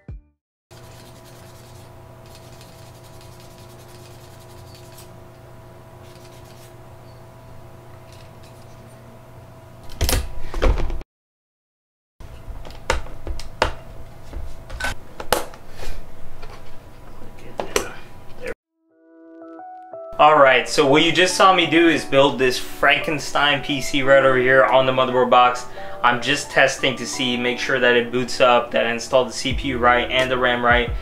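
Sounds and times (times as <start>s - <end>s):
rubbing clatter: 0.8s - 5.1s, 6.0s - 6.8s
steady low hum: 0.8s - 10.4s, 20.5s - 31.0s.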